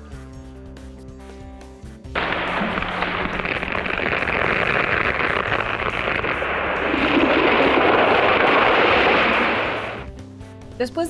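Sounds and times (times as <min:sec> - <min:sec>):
tree falling rushing noise: 0:02.2 - 0:10.1.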